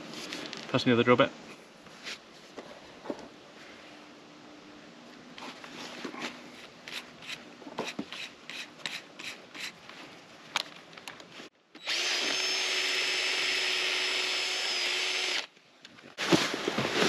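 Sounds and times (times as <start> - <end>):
cordless drill running: 11.8 - 15.5.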